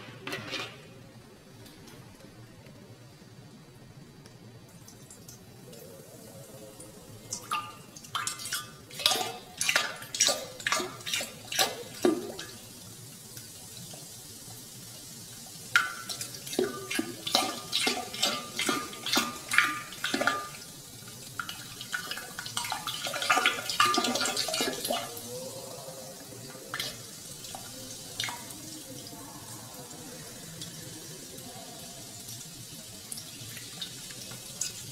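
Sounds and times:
water dripping and splashing: 0:06.8 - 0:25.4, 0:26.1 - 0:29.0, 0:32.1 - 0:34.9.

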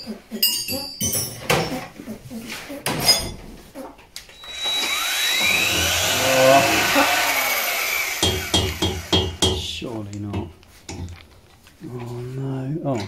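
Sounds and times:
power tool whining: 0:04.3 - 0:09.5.

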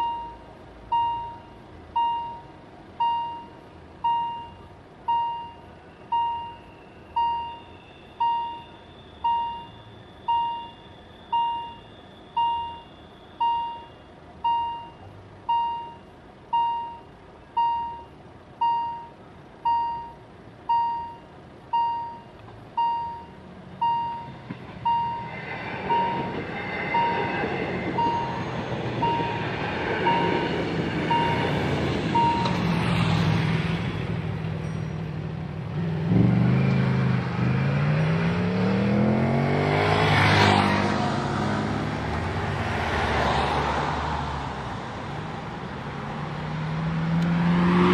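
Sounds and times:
level-crossing warning bell ringing: 0:22.9 - 0:32.7, 0:34.6 - 0:35.3
passing train rumble: 0:23.2 - 0:47.9.

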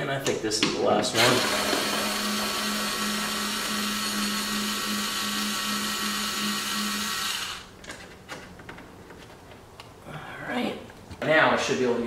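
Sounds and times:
electric screwdriver running: 0:01.1 - 0:07.7.

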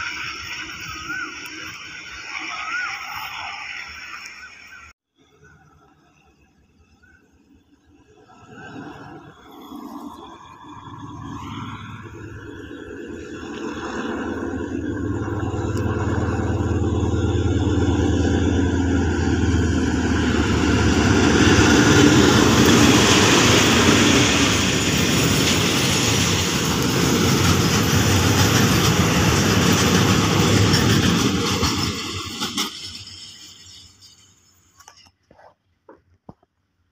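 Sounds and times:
diesel locomotive engine drone: 0:00.0 - 0:04.8, 0:05.4 - 0:35.2
train wheels on rails: 0:09.0 - 0:36.4.

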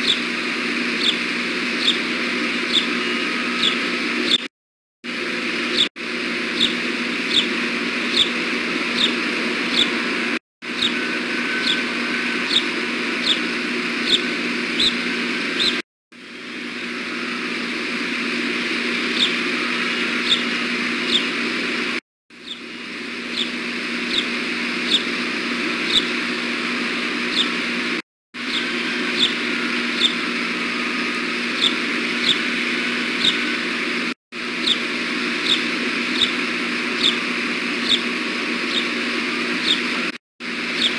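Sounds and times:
osprey high chirps: 0:00.0 - 0:04.5, 0:06.6 - 0:15.8, 0:18.9 - 0:21.4, 0:22.4 - 0:26.3, 0:28.4 - 0:33.6, 0:34.6 - 0:39.0.

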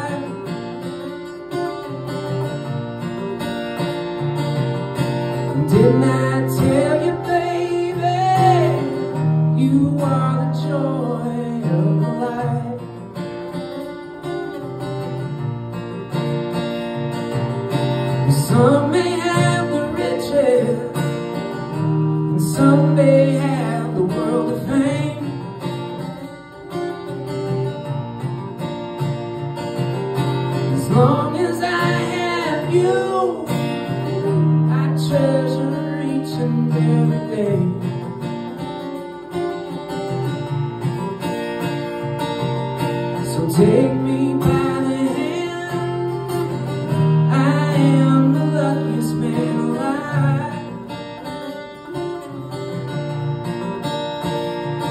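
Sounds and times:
man singing: 0:00.0 - 0:00.5, 0:05.5 - 0:13.0, 0:18.2 - 0:21.5, 0:22.2 - 0:25.5, 0:30.6 - 0:38.1, 0:43.2 - 0:51.0
acoustic guitar strumming: 0:00.0 - 0:54.9.

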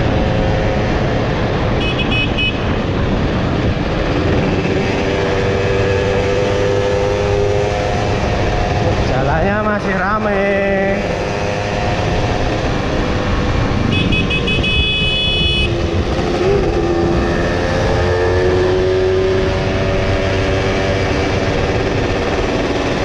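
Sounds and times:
steady rushing noise: 0:00.0 - 0:23.0
two-stroke motorcycle engine running: 0:19.4 - 0:23.0.

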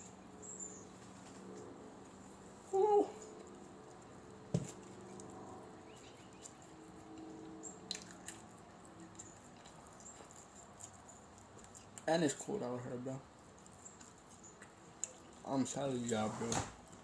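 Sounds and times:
clicks and rustles of handling food: 0:03.3 - 0:12.5.

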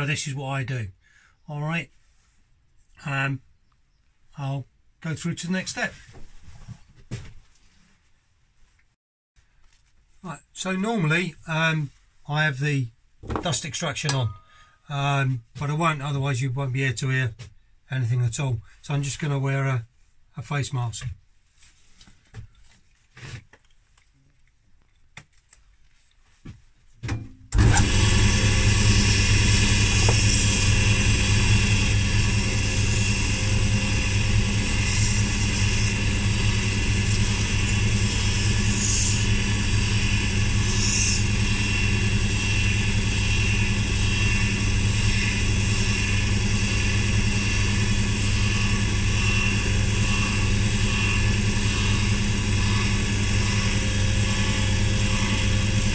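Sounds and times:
face mask rustles and clicks: 0:21.5 - 0:27.0
wood lathe humming: 0:27.6 - 0:55.9
sanding wood by hand: 0:28.1 - 0:55.9.

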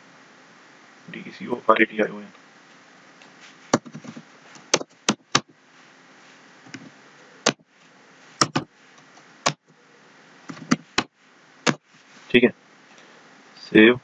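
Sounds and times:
faint steady hiss: 0:00.0 - 0:14.0
keyboard keystrokes: 0:04.7 - 0:05.5, 0:08.4 - 0:08.7.

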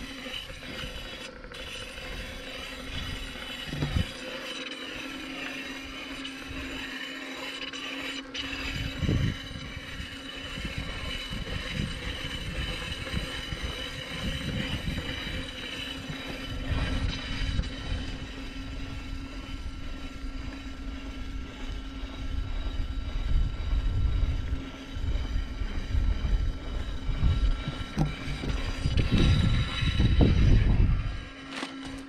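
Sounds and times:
wind and wheel rumble: 0:00.0 - 0:04.2, 0:08.6 - 0:32.0
electric unicycle motor whine: 0:00.0 - 0:32.0.

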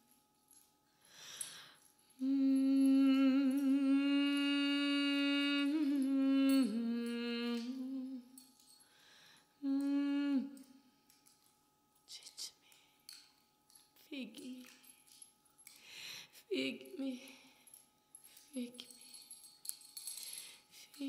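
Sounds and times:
breathy hiss: 0:01.0 - 0:02.6, 0:08.8 - 0:09.7, 0:15.7 - 0:16.6, 0:20.0 - 0:21.0
person humming a held note: 0:02.2 - 0:08.3, 0:09.6 - 0:10.7.

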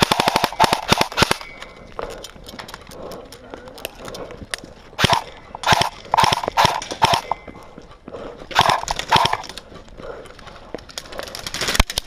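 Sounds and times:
distant airsoft gunfire clicks: 0:05.0 - 0:07.4, 0:08.6 - 0:09.5.

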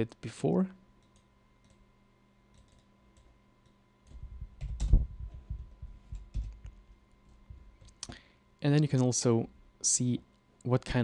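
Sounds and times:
computer mouse and keyboard clicking: 0:02.5 - 0:05.0, 0:06.1 - 0:06.8.

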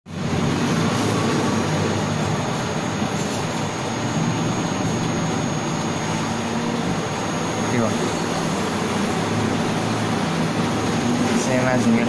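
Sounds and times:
thin high tone: 0:00.4 - 0:12.0.

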